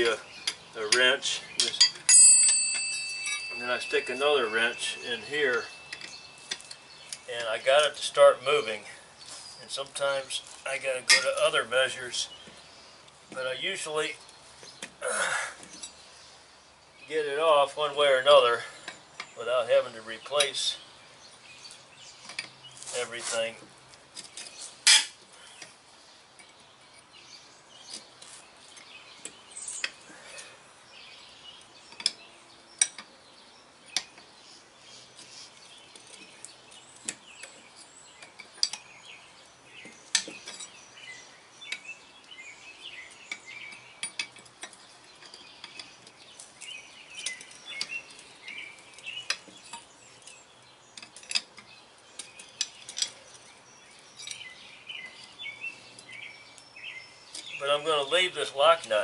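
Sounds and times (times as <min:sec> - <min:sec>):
steel tools clinking on metal: 0:00.0 - 0:07.3, 0:11.0 - 0:11.6, 0:24.2 - 0:25.7, 0:38.2 - 0:38.9, 0:43.1 - 0:50.4, 0:51.0 - 0:53.5, 0:54.1 - 0:55.3.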